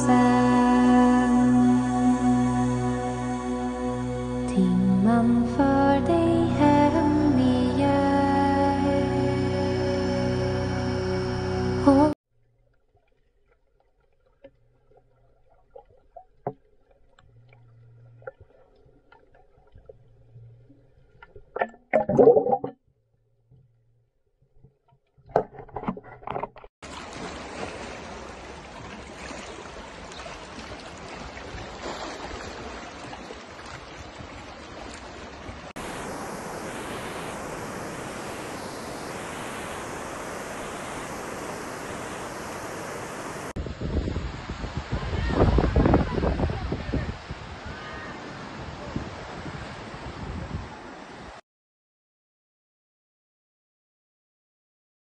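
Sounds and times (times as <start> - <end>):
underwater clicks and knocks: 15.7 - 22.8, 24.5 - 26.7
sea water washing over rocks: 26.8 - 50.2
small waves breaking on sand: 26.8 - 51.4.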